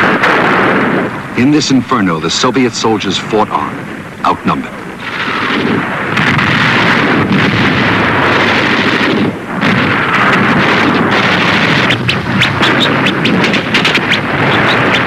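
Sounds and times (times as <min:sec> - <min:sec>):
rapid gunfire: 0:00.0 - 0:01.6, 0:04.6 - 0:15.0
explosions and artillery fire: 0:00.0 - 0:02.3, 0:03.4 - 0:15.0.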